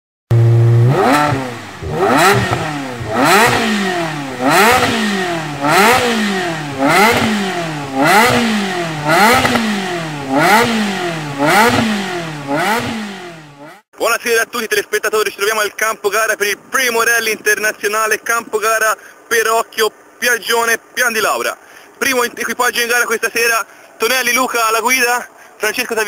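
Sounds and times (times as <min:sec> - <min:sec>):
engine revving in throttle blips: 0:00.3 - 0:13.8.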